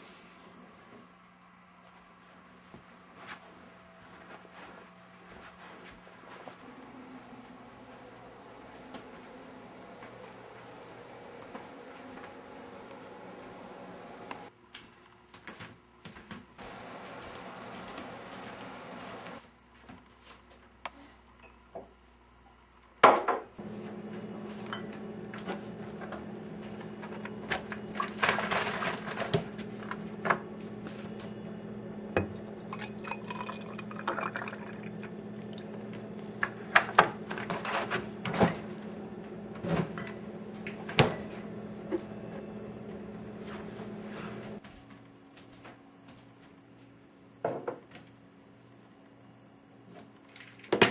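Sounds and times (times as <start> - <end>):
steady low hum: 23.6 - 44.6
liquid pouring into a glass: 32.2 - 35.8.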